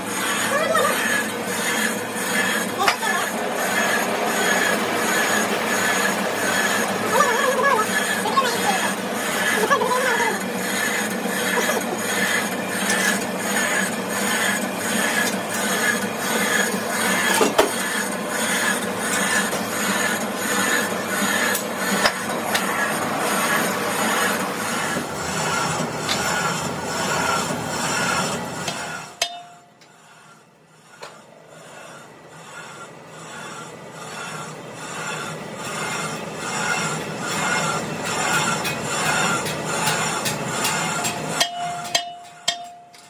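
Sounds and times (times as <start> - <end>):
metal lathe running: 0.0 - 43.0.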